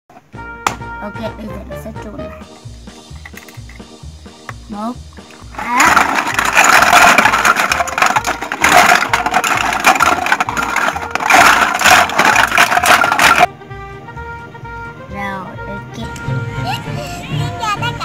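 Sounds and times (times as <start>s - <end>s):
plastic toy pieces clattering: 5.3s - 13.5s.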